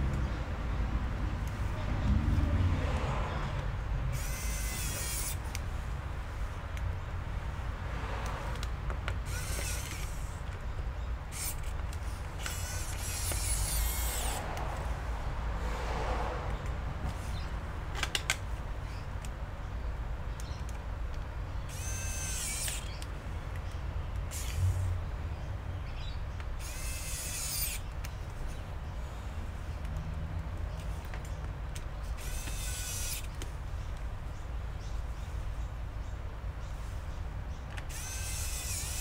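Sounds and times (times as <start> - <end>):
electric screwdriver whirring: 4.1 - 5.6, 9.2 - 10.4, 11.3 - 11.8, 12.4 - 14.4, 21.7 - 23.0, 24.3 - 24.8, 26.6 - 27.8, 32.2 - 33.4, 37.8 - 39.0.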